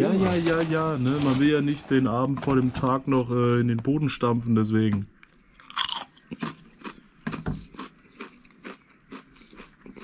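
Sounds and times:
potato chip crunching: 0:05.6 - 0:07.0, 0:07.7 - 0:10.0.

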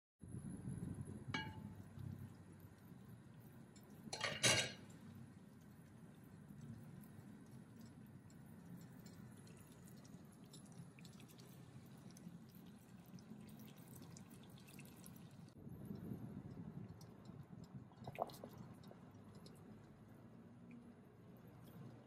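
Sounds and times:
water bubbling at a boil: 0:00.5 - 0:22.0.

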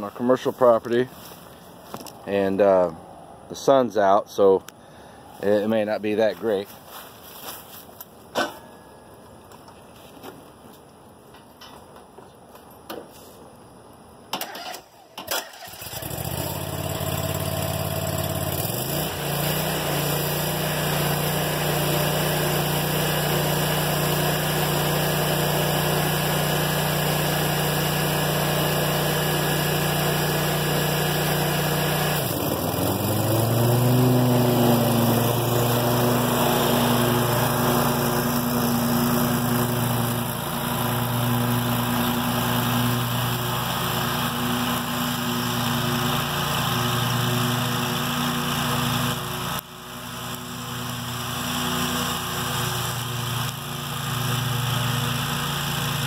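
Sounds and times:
mower engine running: 0:14.4 - 0:56.0.

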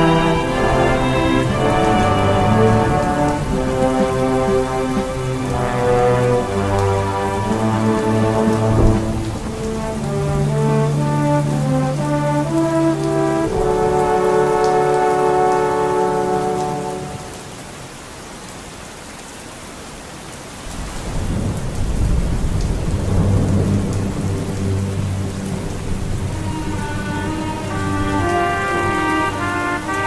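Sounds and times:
rolling thunder rumble: 0:00.0 - 0:15.8, 0:20.7 - 0:30.0
held musical chord: 0:00.0 - 0:17.5, 0:24.8 - 0:30.0
heavy rain: 0:00.0 - 0:30.0.

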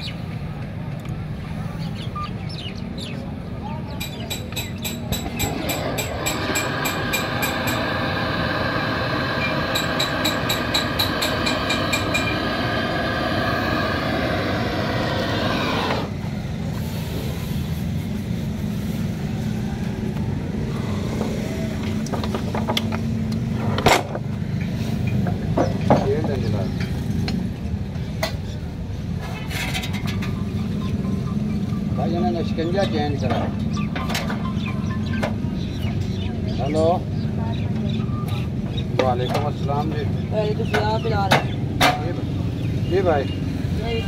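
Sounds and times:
engine droning: 0:04.4 - 0:16.8
higher engine note: 0:05.2 - 0:16.4.

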